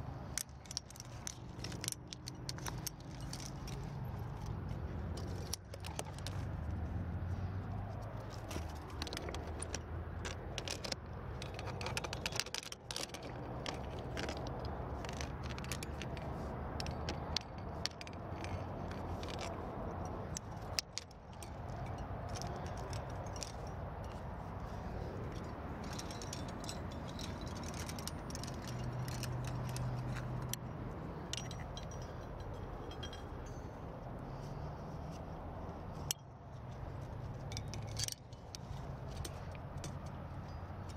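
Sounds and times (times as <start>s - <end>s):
metal climbing gear clinking: 0.0s - 40.9s.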